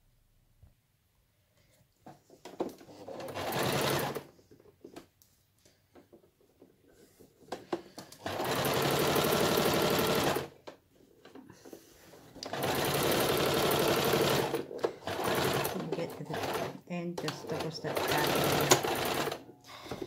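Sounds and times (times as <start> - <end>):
sewing machine stitching: 2.6 - 4.3, 8.1 - 10.7, 12.4 - 19.5.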